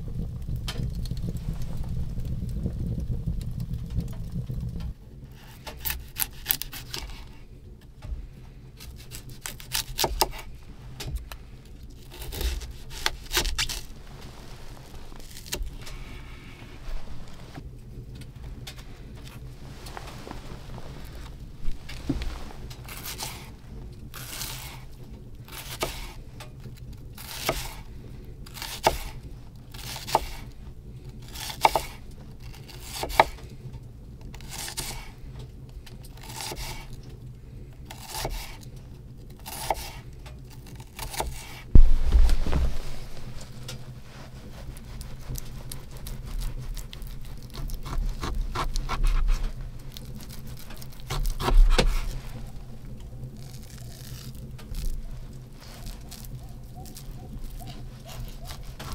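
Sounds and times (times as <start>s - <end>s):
knife scraping on wood: 5.3s - 7.4s, 12.0s - 17.6s, 21.0s - 24.9s, 25.5s - 26.2s, 27.2s - 27.8s, 28.5s - 30.5s, 31.3s - 33.4s, 34.4s - 35.1s, 36.2s - 36.9s, 37.9s - 38.6s, 39.4s - 40.0s, 40.6s - 52.6s
knife slicing onion on board: 8.8s - 10.5s, 25.5s - 26.2s, 27.2s - 27.8s, 28.5s - 29.2s, 29.8s - 30.5s, 31.3s - 32.0s, 32.6s - 33.4s, 34.4s - 35.1s, 36.2s - 36.9s, 38.0s - 38.6s, 39.4s - 40.0s, 40.8s - 42.8s, 50.8s - 52.2s
loud thud: 41.7s - 43.4s.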